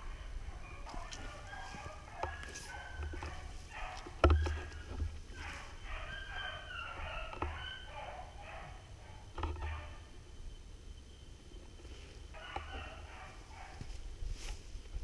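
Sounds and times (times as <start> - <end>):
dogs baying: 0.0 - 10.1, 12.3 - 13.9.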